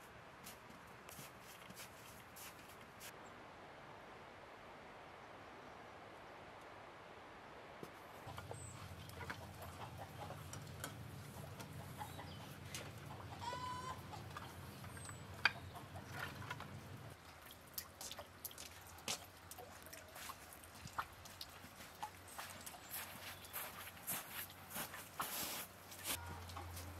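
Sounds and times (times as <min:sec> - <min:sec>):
chicken clucking: 0:08.2 - 0:16.8.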